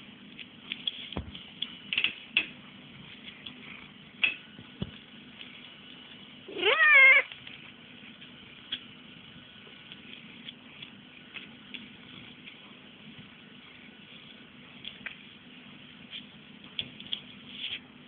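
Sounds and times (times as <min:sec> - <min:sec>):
cat meowing: 0:06.5 - 0:07.3.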